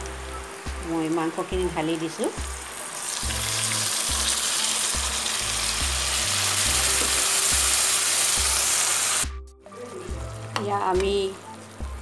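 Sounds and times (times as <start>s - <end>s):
meat sizzling in hot oil: 0.0s - 9.3s.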